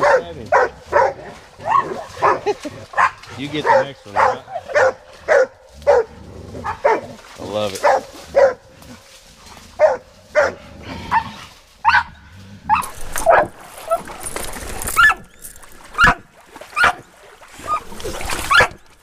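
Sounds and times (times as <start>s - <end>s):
hounds barking: 0.0s - 7.2s, 7.8s - 8.7s, 9.7s - 14.1s, 14.9s - 15.3s, 16.0s - 17.0s, 18.4s - 18.8s.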